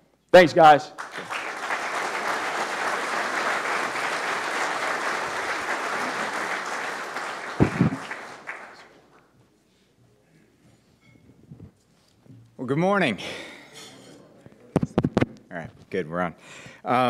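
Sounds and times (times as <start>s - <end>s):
audience applauding: 1.0s - 9.1s.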